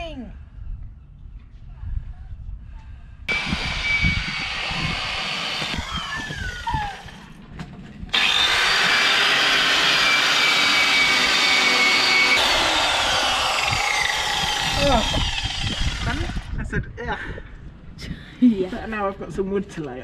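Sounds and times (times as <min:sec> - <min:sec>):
angle grinder whining: 0:03.3 - 0:07.4, 0:08.1 - 0:16.6.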